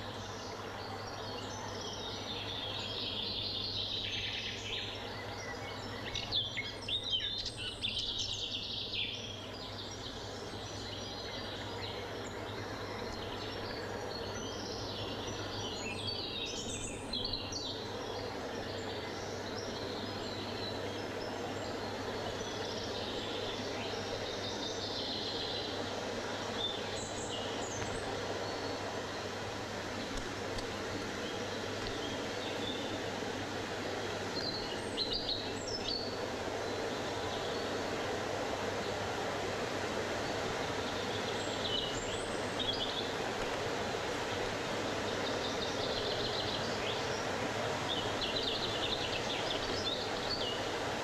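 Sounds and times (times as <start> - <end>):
wind through trees: 0.0 - 51.0
birds chirping and singing: 34.3 - 37.7.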